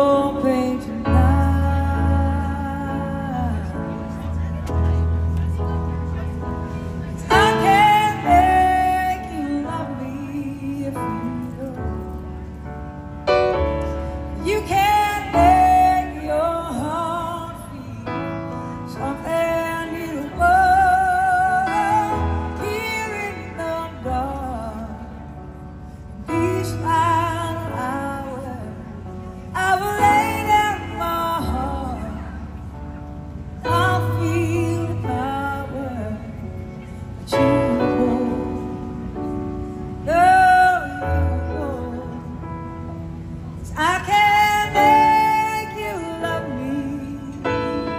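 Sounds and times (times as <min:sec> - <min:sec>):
woman singing with vibrato: 0:00.0 - 0:04.1, 0:07.2 - 0:12.1, 0:14.2 - 0:25.4, 0:26.2 - 0:32.6, 0:33.6 - 0:36.6, 0:37.2 - 0:39.2, 0:40.0 - 0:42.4, 0:43.6 - 0:47.9
slow keyboard chords: 0:00.0 - 0:47.9.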